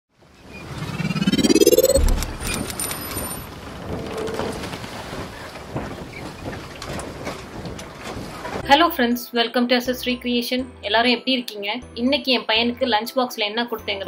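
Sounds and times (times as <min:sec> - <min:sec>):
rising whoosh: 0:00.6 - 0:03.0
low boom: 0:00.8 - 0:02.7.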